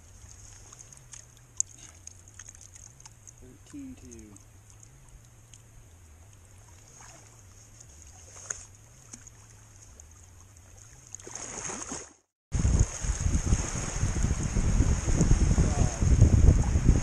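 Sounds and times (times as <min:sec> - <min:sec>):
water dripping and lapping: 0:00.0 - 0:15.3
water splashing: 0:00.0 - 0:17.0
waves breaking on shore: 0:11.2 - 0:17.0
wind on microphone: 0:12.5 - 0:17.0.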